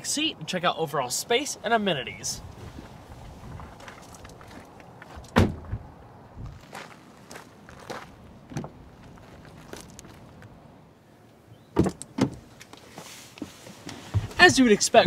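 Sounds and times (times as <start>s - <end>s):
footsteps on gravel: 2.6s - 5.3s, 6.4s - 10.5s
car door clunks: 5.3s - 5.9s, 11.8s - 12.5s
rustle of climbing onto seat: 12.5s - 14.7s.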